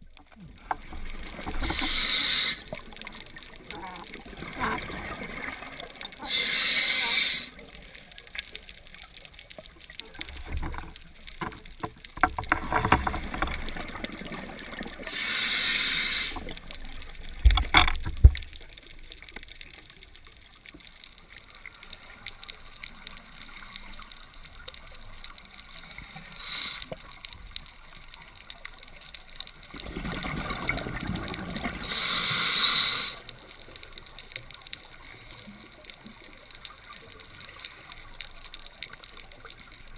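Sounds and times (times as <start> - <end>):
diver breathing underwater: 1.4 - 2.9, 6.2 - 7.8, 15.0 - 16.6, 26.2 - 27.0, 31.7 - 33.3
exhaled bubbles bursting: 29.7 - 31.9.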